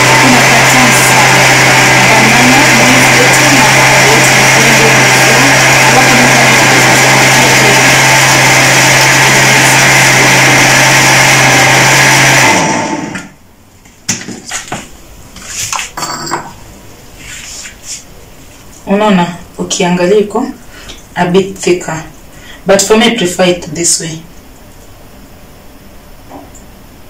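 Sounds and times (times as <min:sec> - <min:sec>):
blender running: 0:00.0 - 0:13.4.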